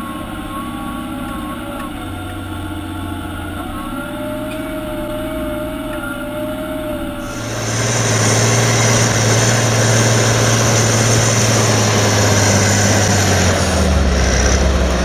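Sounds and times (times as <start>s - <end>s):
diesel tractor engine under load: 0.0s - 15.0s
high steady whine: 0.0s - 15.0s.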